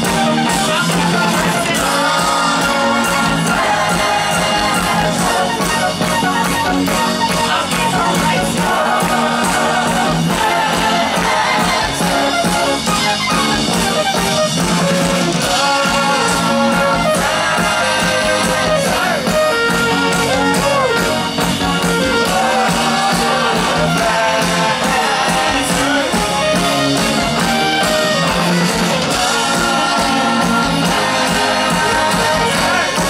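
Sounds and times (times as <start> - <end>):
live band playing electro-pop: 0.0 - 33.0.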